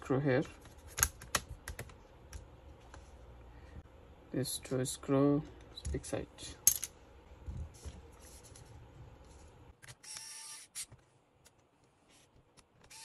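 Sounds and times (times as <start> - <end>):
electric screwdriver whirring: 10.0 - 10.9.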